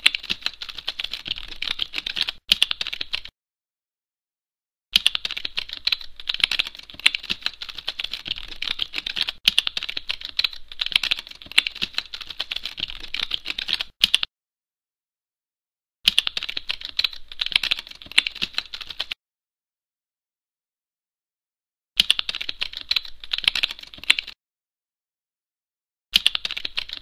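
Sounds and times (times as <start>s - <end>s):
fast keyboard typing: 0.0s - 3.3s, 5.0s - 14.3s, 16.1s - 19.2s, 22.0s - 24.4s, 26.2s - 27.0s.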